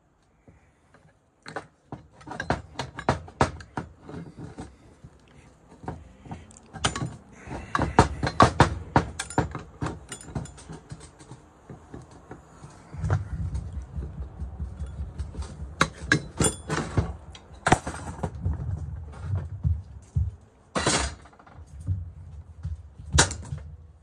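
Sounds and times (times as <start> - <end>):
metal clinks and knocks: 0.9 - 23.7.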